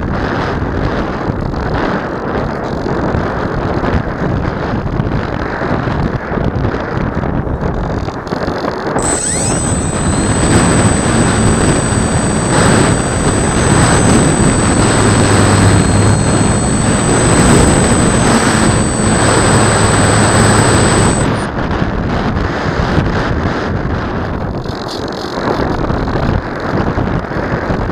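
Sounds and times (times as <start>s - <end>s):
electric motor whine: 9.0s - 21.5s
propeller buzz: 9.0s - 21.5s.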